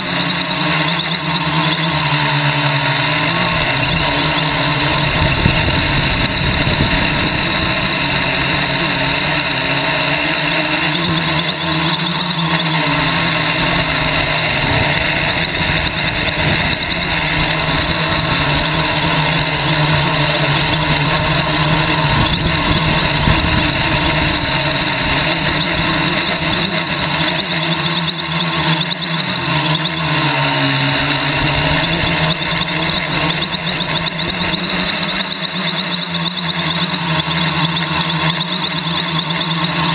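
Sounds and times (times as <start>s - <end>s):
drone propellers whirring: 0.0s - 39.9s
rushing prop wash: 1.4s - 28.5s.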